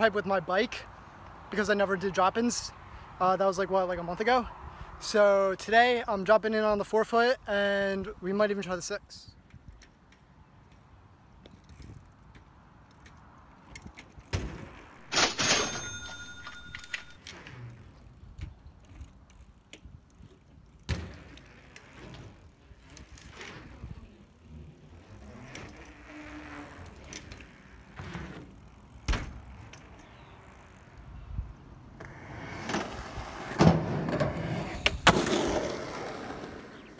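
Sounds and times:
bike rolling noise: 0:08.6 - 0:36.9
bike tyres banging on ramp: 0:14.2 - 0:14.9, 0:20.8 - 0:21.4
bike knocking on ramps: 0:20.8 - 0:21.5, 0:27.9 - 0:29.8.

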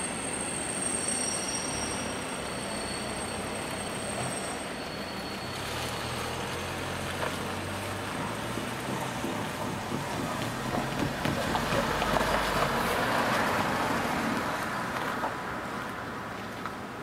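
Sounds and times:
car passing: 0:05.4 - 0:17.0.

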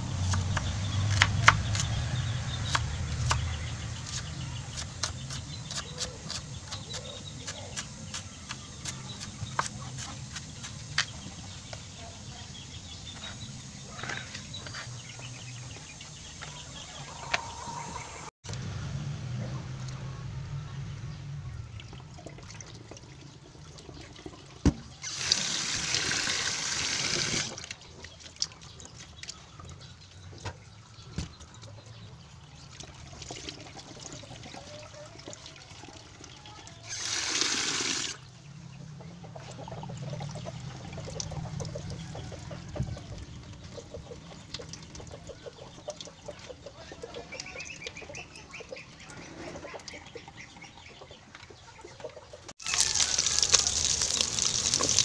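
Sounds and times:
hands working wet beans: 0:00.0 - 0:12.3, 0:52.6 - 0:55.0.

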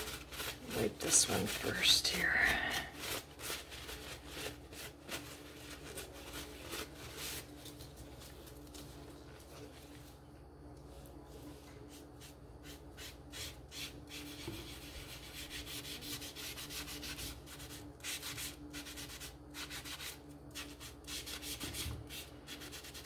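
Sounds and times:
foam brush scrubbing wood: 0:00.0 - 0:07.2.

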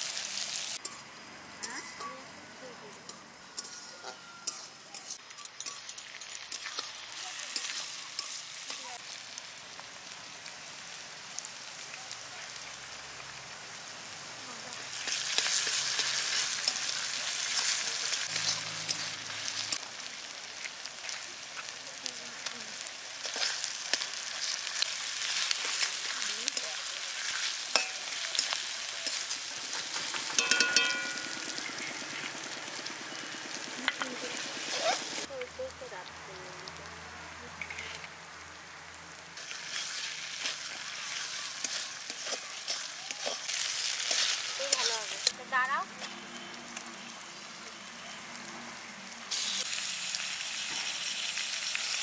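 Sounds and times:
onions sizzling in oil: 0:00.0 - 0:52.0
metal spatula scraping a pan: 0:39.6 - 0:45.4.

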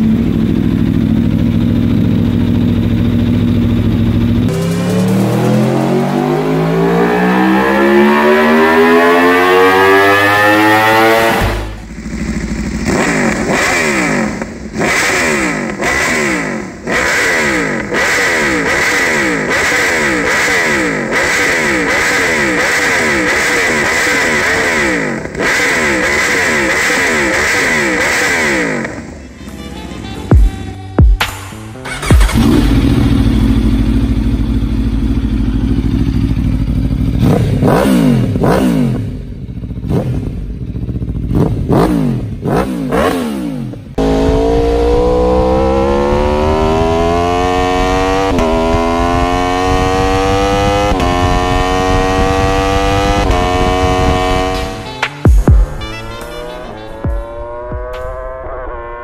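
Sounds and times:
motorcycle engine idling: 0:00.0 - 0:05.2, 0:11.6 - 0:23.5, 0:26.6 - 0:42.5
motorcycle engine revving: 0:00.0 - 0:59.0.

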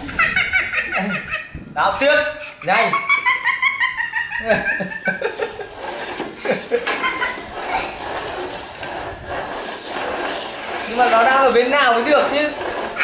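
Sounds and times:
soft chuckling: 0:03.0 - 0:07.5
bowls knocking and sliding on table: 0:05.8 - 0:11.2.

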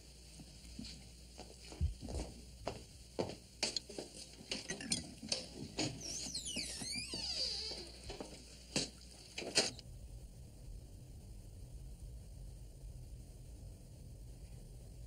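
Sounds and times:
glasses and crockery clinking: 0:04.7 - 0:05.1.

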